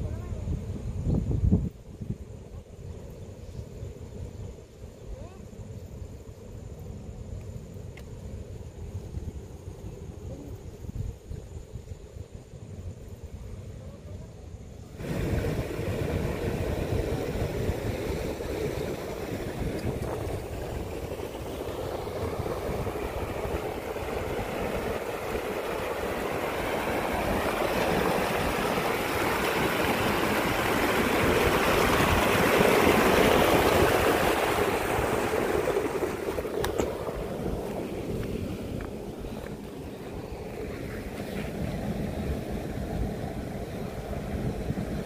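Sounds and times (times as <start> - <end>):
water rushing through rocks: 15.0 - 45.0.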